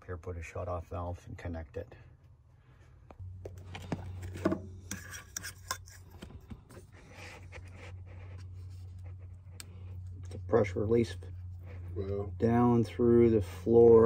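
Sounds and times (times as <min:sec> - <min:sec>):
steady low hum: 0:00.0 - 0:14.0
plastic pipe rubbing and scraping: 0:03.5 - 0:10.4.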